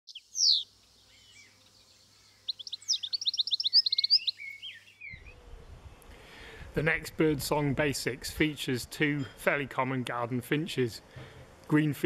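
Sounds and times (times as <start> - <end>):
goldfinch singing: 0.1 - 5.4.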